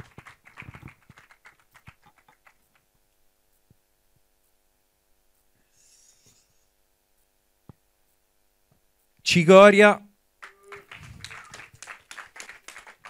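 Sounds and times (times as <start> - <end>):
audience clapping: 0.0 - 2.9, 10.4 - 13.0
faint steady hum: 0.0 - 13.0.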